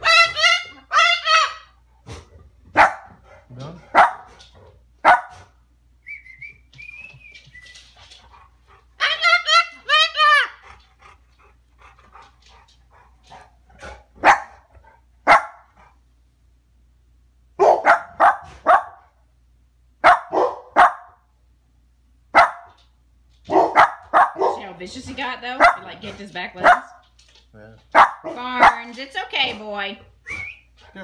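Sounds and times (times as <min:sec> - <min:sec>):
dog barking: 0:02.7 - 0:03.2, 0:03.9 - 0:04.3, 0:05.0 - 0:05.4, 0:14.2 - 0:14.6, 0:15.2 - 0:15.7, 0:17.6 - 0:19.1, 0:20.0 - 0:21.2, 0:22.3 - 0:22.8, 0:23.5 - 0:24.8, 0:25.6 - 0:25.9, 0:26.6 - 0:27.0, 0:27.9 - 0:29.0.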